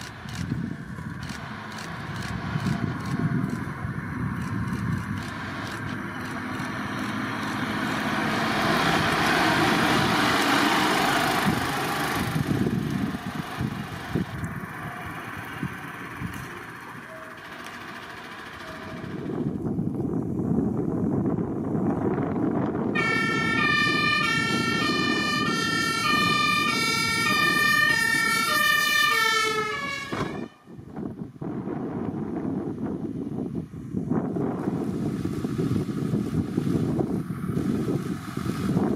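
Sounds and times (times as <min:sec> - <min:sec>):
diesel truck engine passing: 0:00.0 - 0:33.0, 0:34.0 - 0:38.9
road noise: 0:00.0 - 0:38.9
wind: 0:00.0 - 0:38.9
two-tone fire engine horn: 0:22.9 - 0:30.8.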